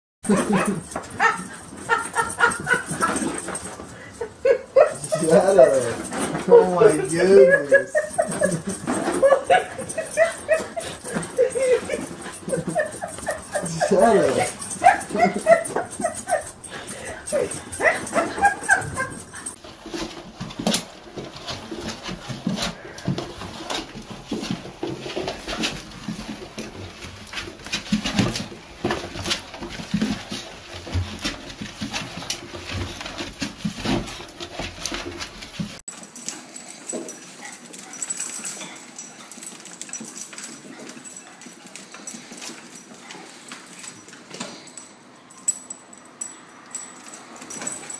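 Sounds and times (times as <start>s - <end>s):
small dogs whimpering and yipping: 0.3s - 19.6s.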